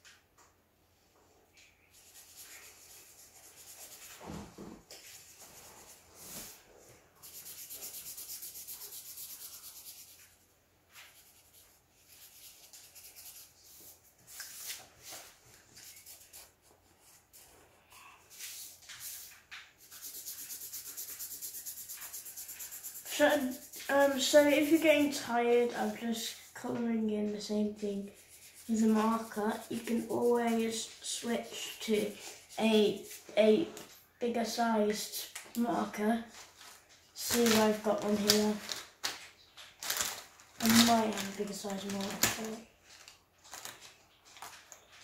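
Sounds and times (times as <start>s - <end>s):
marker scribbling on paper: 2.0s - 4.2s, 7.2s - 10.4s, 11.1s - 14.7s, 15.8s - 17.4s, 18.3s - 26.4s, 27.2s - 33.3s.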